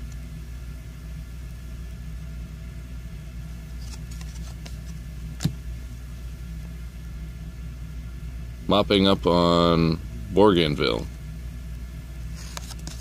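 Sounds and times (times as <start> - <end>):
trading cards flipping clicks: 3.8 - 5.6.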